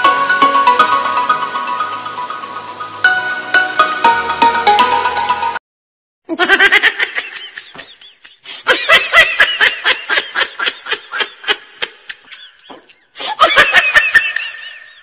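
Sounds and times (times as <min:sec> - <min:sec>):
person laughing: 0:06.3 - 0:15.0.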